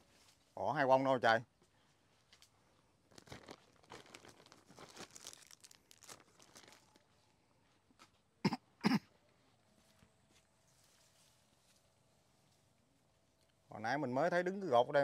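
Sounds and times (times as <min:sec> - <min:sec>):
plastic bag rustling: 0:03.0 - 0:07.2.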